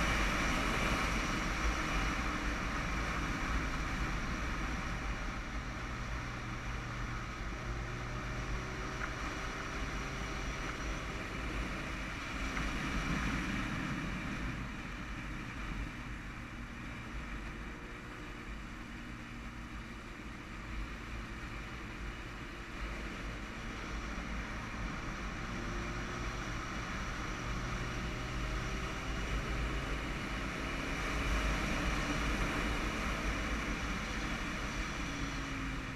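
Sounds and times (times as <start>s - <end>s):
wind rushing over microphone: 11.0s - 16.3s.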